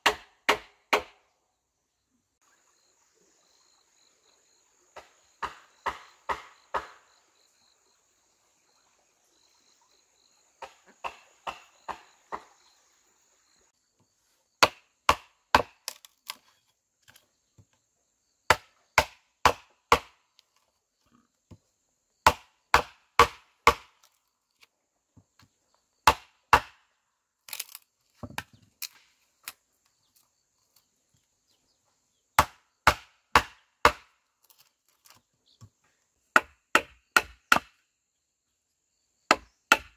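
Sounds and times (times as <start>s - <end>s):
blade chopping wood: 0.0s - 1.2s, 5.0s - 7.0s, 10.6s - 12.6s, 14.6s - 16.4s, 18.5s - 20.2s, 22.2s - 24.1s, 26.0s - 26.8s, 32.4s - 34.1s, 36.3s - 37.8s, 39.3s - 39.9s.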